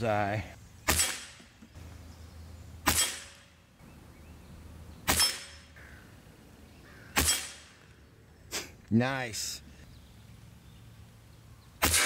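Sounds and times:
air rifle shots: 0.8 - 1.7, 2.8 - 3.6, 5.0 - 5.8, 7.1 - 7.9, 11.8 - 12.0.

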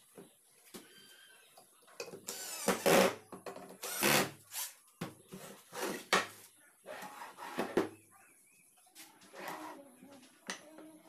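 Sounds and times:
cordless drill driving screws: 2.3 - 3.2, 3.8 - 4.3.

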